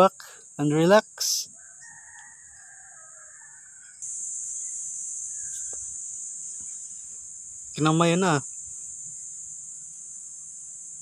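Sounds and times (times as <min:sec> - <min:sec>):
loud high insect buzz: 0:00.0 - 0:11.0
distant rooster crowing: 0:01.5 - 0:04.1.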